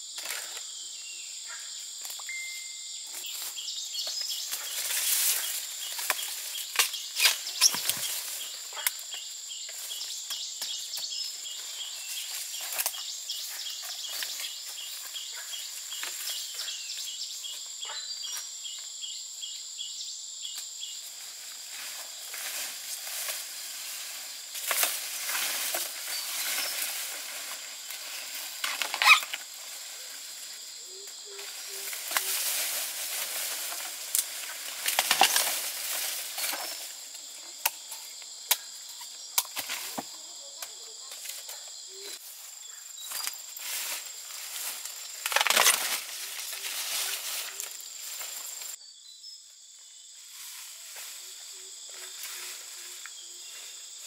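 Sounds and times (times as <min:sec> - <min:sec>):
insects chirring: 0:00.0 - 0:54.0
dry plants crackling and snapping: 0:24.5 - 0:29.8, 0:31.4 - 0:37.9, 0:44.7 - 0:48.7.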